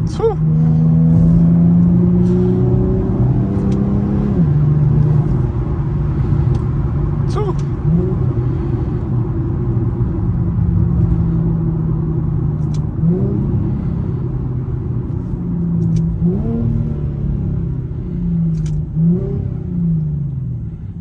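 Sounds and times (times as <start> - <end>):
car engine drone from cabin: 0.0 - 21.0
engine revving on downshifts: 0.4 - 9.1, 12.5 - 20.4.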